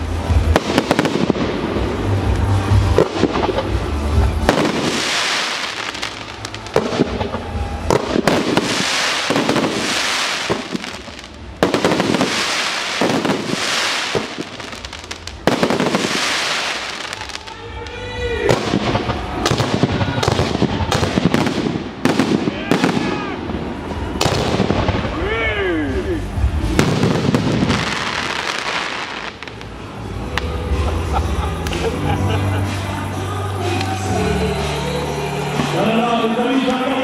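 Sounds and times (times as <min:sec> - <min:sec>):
dense firework crackling: 0:00.0 - 0:30.9
firework shells bursting with bangs: 0:04.4 - 0:17.5.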